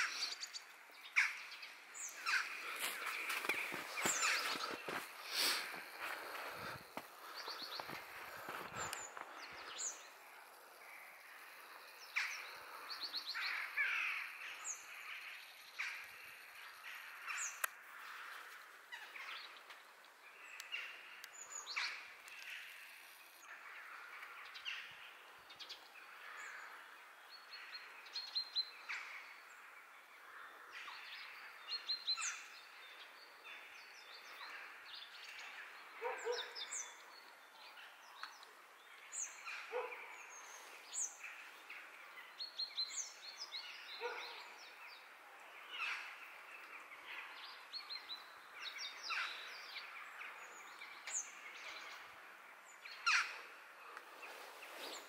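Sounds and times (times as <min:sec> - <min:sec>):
lower bird calls: 0:00.0 - 0:10.4
small birds chirping: 0:00.0 - 0:55.0.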